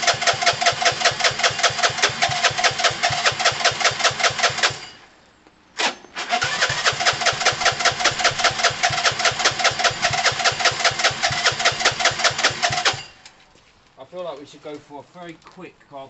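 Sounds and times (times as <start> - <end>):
engine firing burst: 0.0 - 5.0, 5.8 - 13.2.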